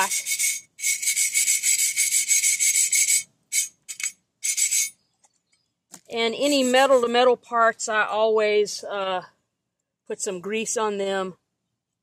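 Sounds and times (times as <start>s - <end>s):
wire brush scrubbing metal: 6.4s - 7.1s.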